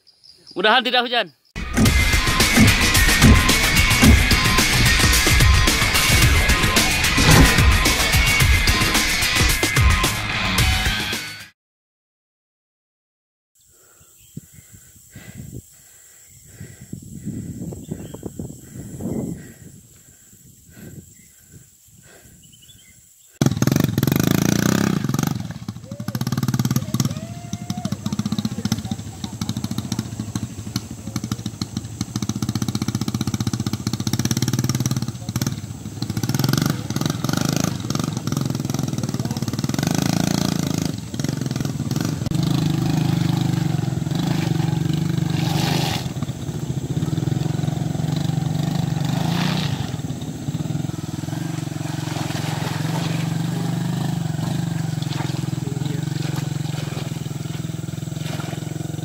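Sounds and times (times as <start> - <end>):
sharp knocks: 1.6 - 9.2
motorcycle engines revving: 1.6 - 11.1, 23.4 - 59.0.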